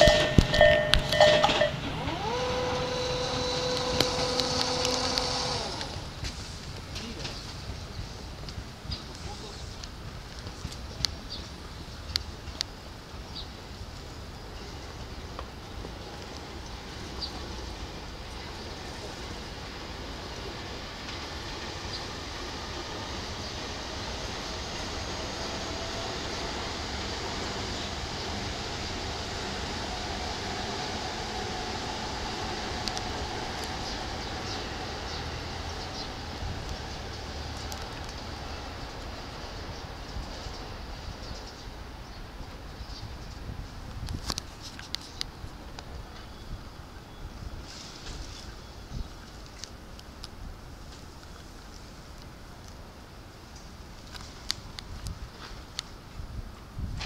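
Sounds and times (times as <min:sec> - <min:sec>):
crossing alarm bell clanging: 0:00.0 - 0:02.4
electric motor whine: 0:01.2 - 0:06.1.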